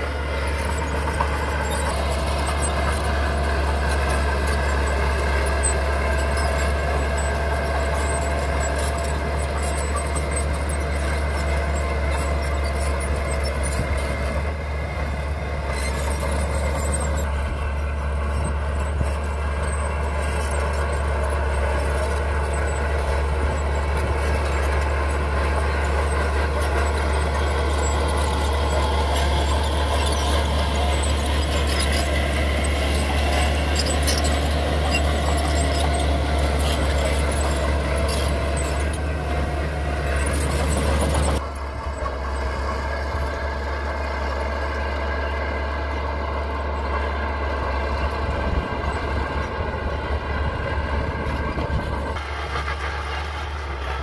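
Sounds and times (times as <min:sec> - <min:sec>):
bulldozer engine droning: 0:00.0 - 0:54.0.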